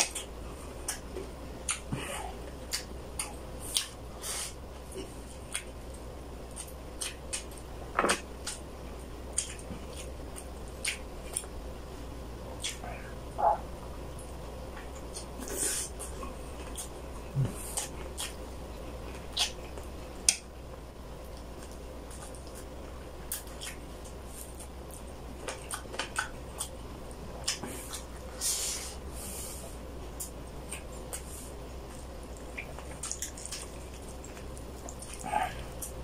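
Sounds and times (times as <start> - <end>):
wet chewing and lip smacking: 5.0 - 7.6, 9.3 - 11.5, 19.0 - 20.5, 21.3 - 26.8, 30.2 - 36.0.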